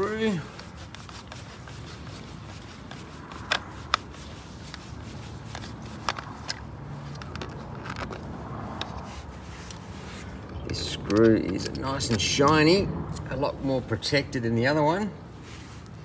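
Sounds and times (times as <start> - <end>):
screwdriver scraping: 0.6 - 12.7.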